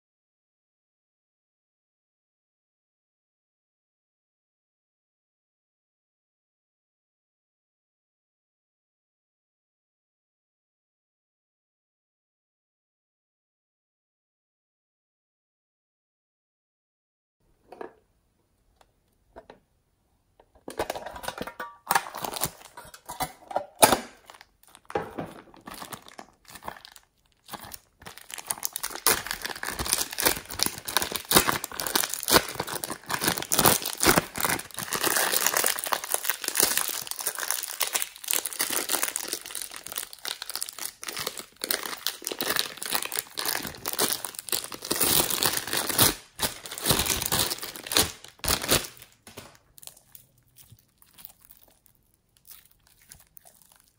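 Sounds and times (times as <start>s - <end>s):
plastic bag crinkling: 20.9s - 23.2s, 23.8s - 53.9s.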